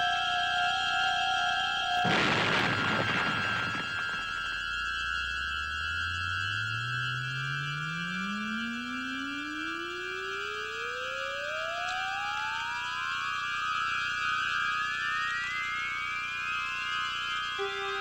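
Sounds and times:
electronic drone: 0.0 - 18.0
tone gliding upward: 17.6 - 18.0.

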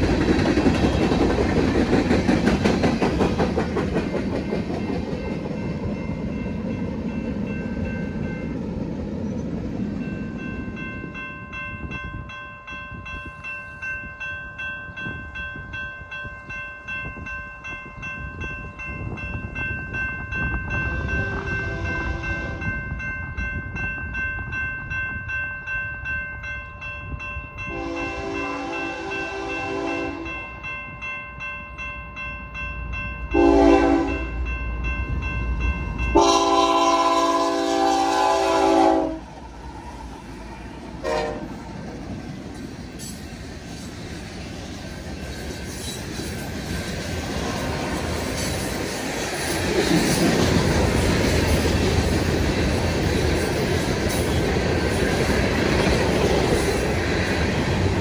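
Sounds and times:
crossing warning bell ringing: 0.0 - 58.0
train rumble: 0.0 - 58.0
locomotive horn: 21.0 - 22.7, 27.7 - 30.4, 33.4 - 34.3, 36.1 - 39.3, 41.0 - 41.5.

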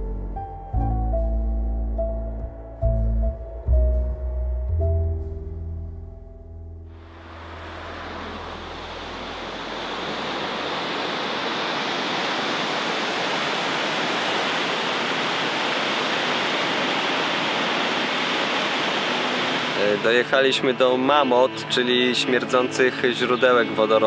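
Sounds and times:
waterfall rushing: 6.9 - 23.8.

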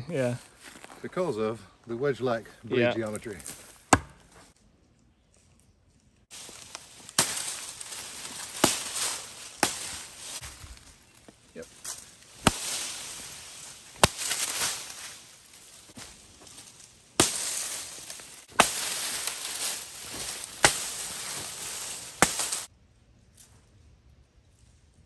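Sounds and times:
blade chopping branch: 3.9 - 4.3, 6.3 - 10.8, 11.8 - 22.7
leaves shaking and rustling: 6.2 - 22.7.

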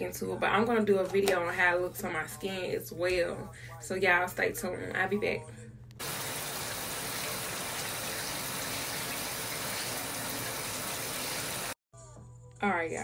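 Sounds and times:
running water: 6.0 - 11.8.

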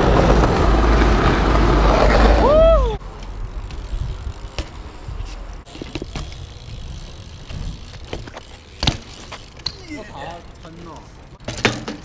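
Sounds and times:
bike tyre rumble on pavement: 0.0 - 12.0
bike clicks and knocks: 3.0 - 12.0.

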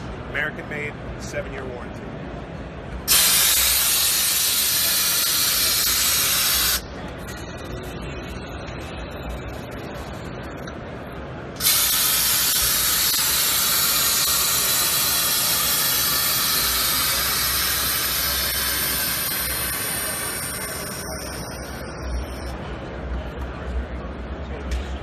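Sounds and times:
low background noise: 0.0 - 25.0
compressed air hissing: 3.1 - 6.8, 11.6 - 22.5.

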